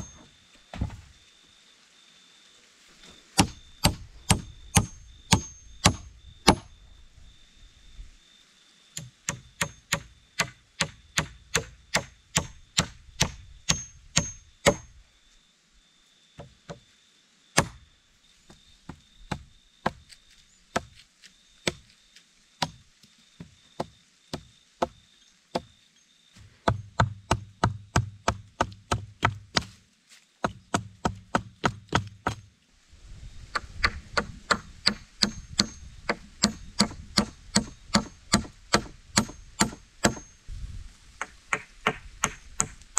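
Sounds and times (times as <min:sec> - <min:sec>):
hatchet striking wooden poles: 0:03.4 - 0:06.7, 0:09.0 - 0:14.9, 0:16.4 - 0:16.8, 0:17.6 - 0:17.8, 0:18.9 - 0:20.1, 0:20.7 - 0:21.0, 0:21.6 - 0:21.9, 0:22.6 - 0:22.8, 0:26.6 - 0:29.8, 0:30.4 - 0:32.5, 0:33.5 - 0:40.3, 0:41.2 - 0:42.9.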